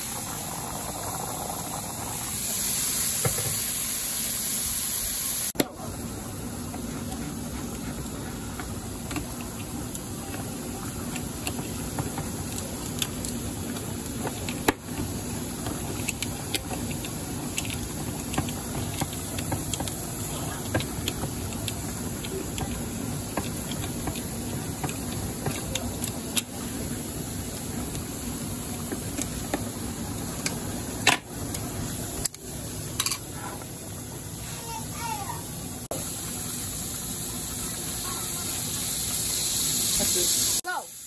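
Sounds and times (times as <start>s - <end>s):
kitchen hiss and hum: 0.0s - 41.0s
can opener working on tin: 9.1s - 26.6s.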